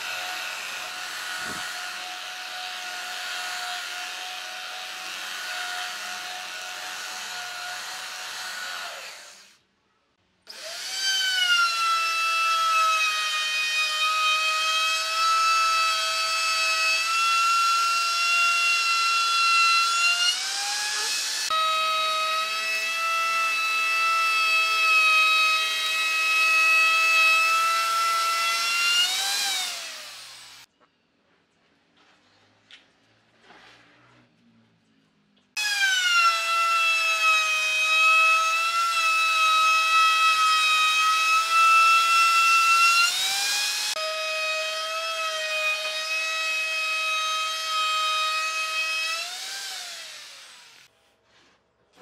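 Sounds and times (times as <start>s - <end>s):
electric belt sander running: 0.0s - 6.1s, 28.5s - 30.7s, 49.1s - 50.9s
router whine cutting wood: 0.0s - 9.5s, 10.5s - 30.7s, 35.6s - 50.9s.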